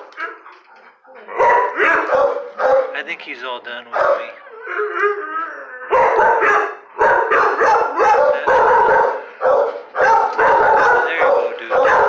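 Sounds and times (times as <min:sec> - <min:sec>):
dog barking: 0:01.1 - 0:03.0, 0:03.8 - 0:04.4, 0:05.9 - 0:12.0.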